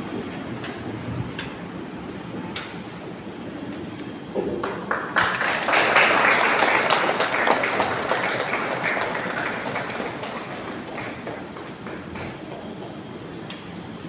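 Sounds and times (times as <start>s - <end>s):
audience applause: 4.6s - 13.0s.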